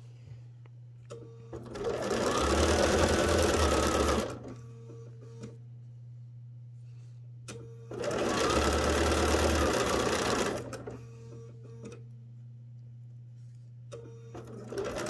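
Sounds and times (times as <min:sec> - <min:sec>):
sewing machine stitching: 0:01.5 - 0:04.5, 0:07.9 - 0:11.0, 0:14.3 - 0:15.0.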